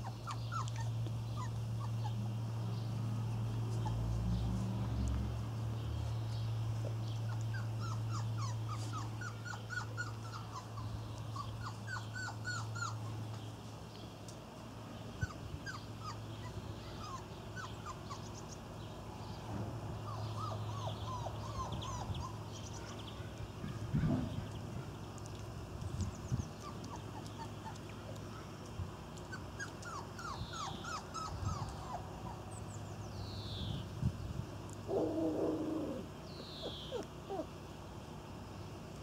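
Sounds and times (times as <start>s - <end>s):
puppies whimpering and squeaking: 0.0s - 2.4s, 3.6s - 4.3s, 7.2s - 13.3s, 15.2s - 18.6s, 20.0s - 22.8s, 26.2s - 28.3s, 29.2s - 32.8s, 34.9s - 37.5s.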